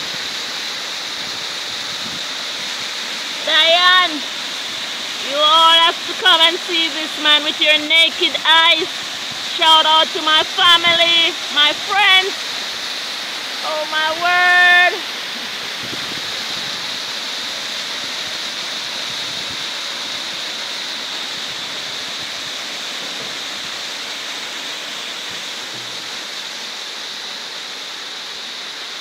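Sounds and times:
waterfall rushing: 0.0s - 29.0s.

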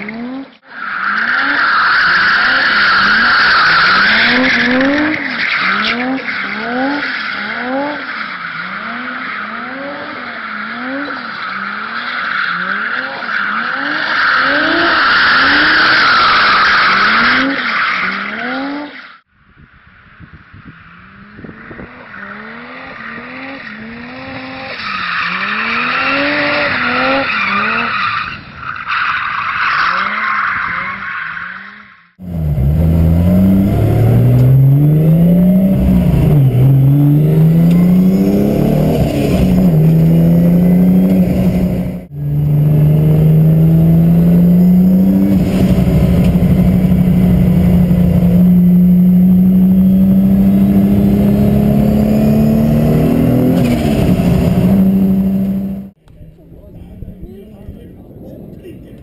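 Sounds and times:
car engine revving: 0.0s - 19.2s, 20.6s - 28.1s, 32.2s - 56.0s
tires squealing: 0.0s - 19.2s, 20.6s - 55.9s.

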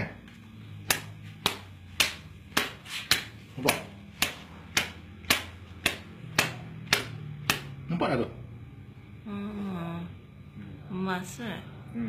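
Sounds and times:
sharp taps on skin: 0.8s - 7.7s.

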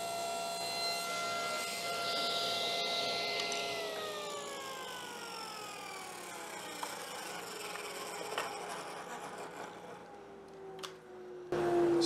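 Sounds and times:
table saw winding down: 0.0s - 10.8s.

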